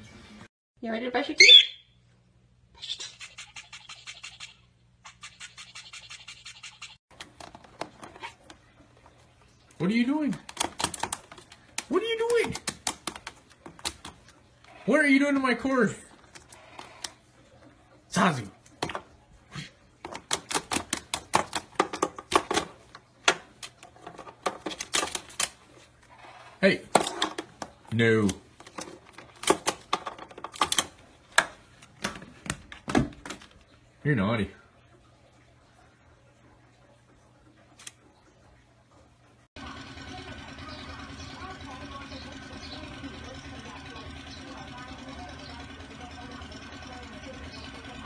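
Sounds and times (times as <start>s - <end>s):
toothbrush scratching a beak: 2.8s - 7.0s
parrot clicking on hard plastic: 10.3s - 14.3s, 20.0s - 25.6s, 26.9s - 33.6s.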